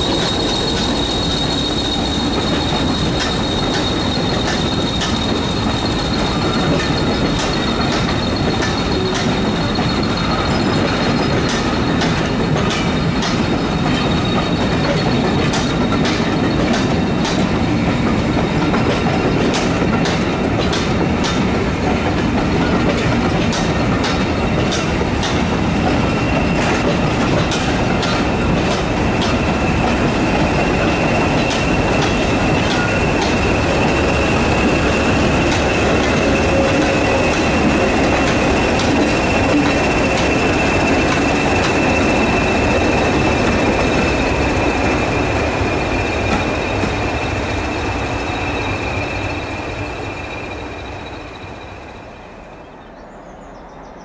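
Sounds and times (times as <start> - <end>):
high wheel squeal: 0.0 - 19.5, 25.8 - 52.7
train rumbling past: 0.0 - 54.0.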